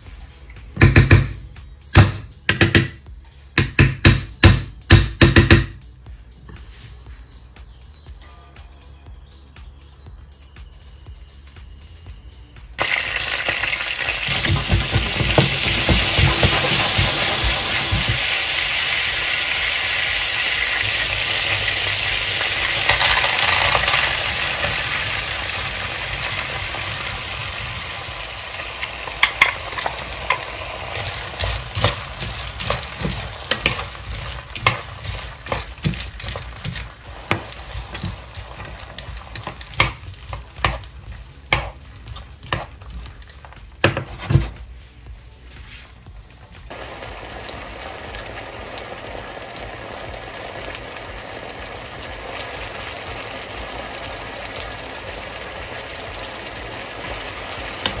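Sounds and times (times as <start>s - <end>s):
peas sizzling in butter: 12.7s - 44.8s, 46.6s - 58.0s
wooden spatula scraping a pan: 43.9s - 44.6s.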